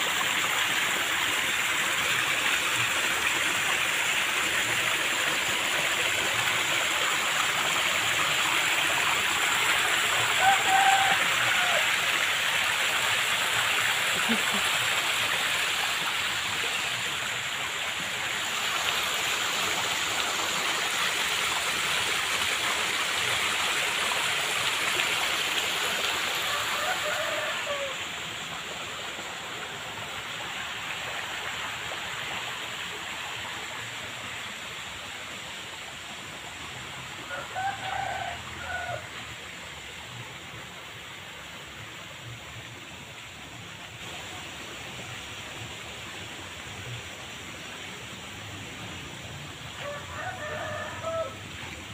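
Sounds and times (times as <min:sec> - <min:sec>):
flowing water rushing: 0:00.0 - 0:51.9
rooster crowing: 0:10.3 - 0:12.0, 0:26.4 - 0:28.1, 0:37.3 - 0:39.1, 0:49.8 - 0:51.6.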